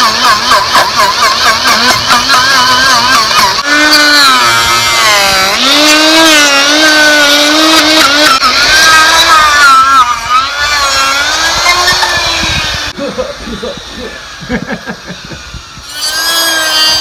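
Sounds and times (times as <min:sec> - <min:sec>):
die grinder cutting wood: 0:00.0 - 0:17.0.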